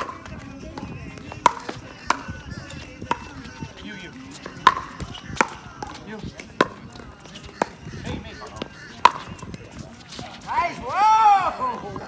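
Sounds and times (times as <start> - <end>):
paddles striking plastic ball: 4.6 - 6.8.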